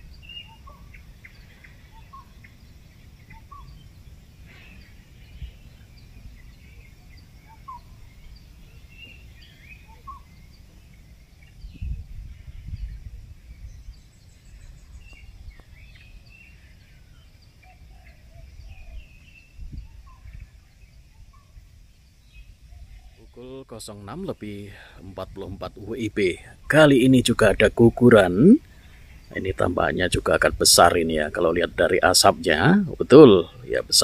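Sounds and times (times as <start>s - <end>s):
small birds chirping: 0.0s - 34.0s
low outdoor rumble: 22.8s - 34.0s.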